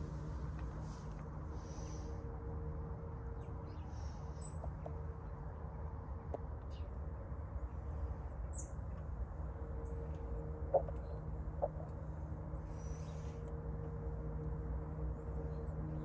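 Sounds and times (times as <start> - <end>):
low rumble: 7.5 - 16.0.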